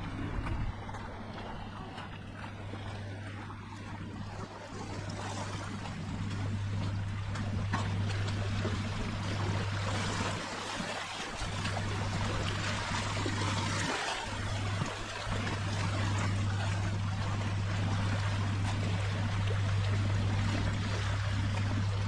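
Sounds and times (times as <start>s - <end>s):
small waves lapping on rocks: 0.0s - 22.0s
steady low hum: 0.0s - 22.0s.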